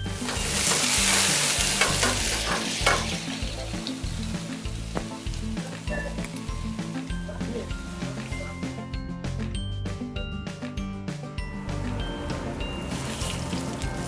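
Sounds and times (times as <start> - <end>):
food sizzling in a wok: 0.0 - 8.8, 12.0 - 14.0.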